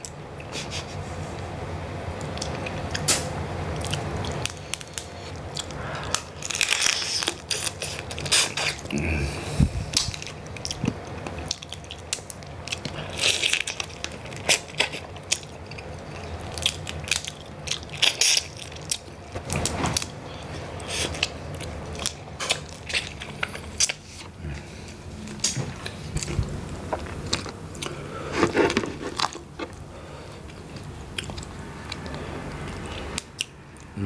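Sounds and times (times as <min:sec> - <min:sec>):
wet chewing: 0:02.2 - 0:08.9, 0:09.9 - 0:33.9.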